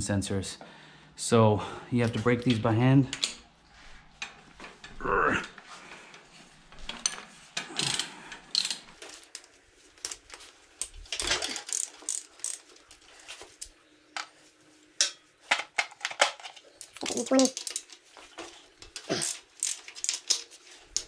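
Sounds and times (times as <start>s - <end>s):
ratchet wrench clicking: 11.2s - 12.7s.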